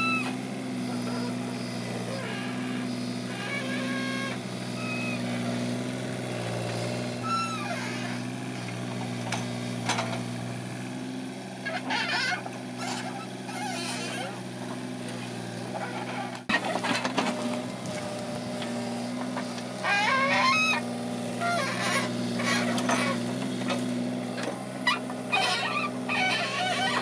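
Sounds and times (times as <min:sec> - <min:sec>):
diesel engine running: 0:00.0 - 0:27.0
short falling squeal: 0:07.2 - 0:08.2.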